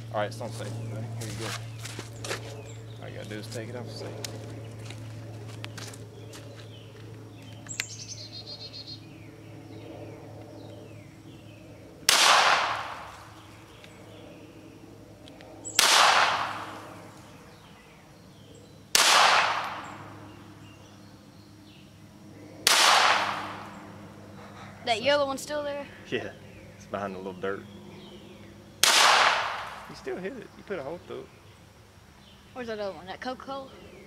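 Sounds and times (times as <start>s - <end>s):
pistol shots with echo: 12.1s - 13.1s, 15.8s - 16.8s, 18.9s - 19.9s, 22.6s - 23.7s, 28.8s - 29.8s.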